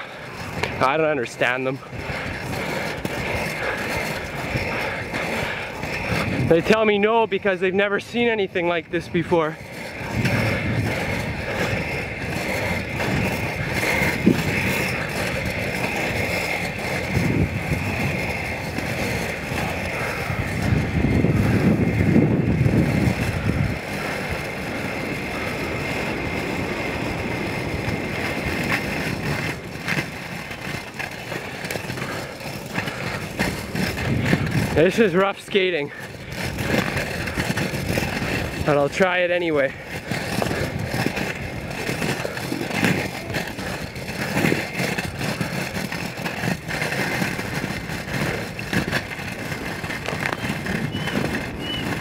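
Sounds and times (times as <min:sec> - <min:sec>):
skate wheels rolling on asphalt: 0:00.0 - 0:52.0.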